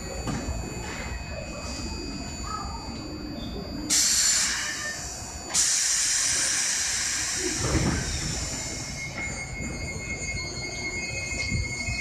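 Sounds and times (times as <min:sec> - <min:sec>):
steady high tone: 0:00.0 - 0:12.0
compressed air hissing: 0:05.5 - 0:08.9.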